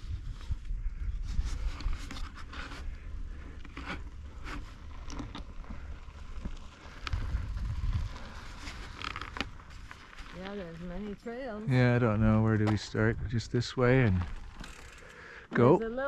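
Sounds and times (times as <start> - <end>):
scrapes and rustles: 0.0 - 11.4
steady low rumble: 11.9 - 14.5.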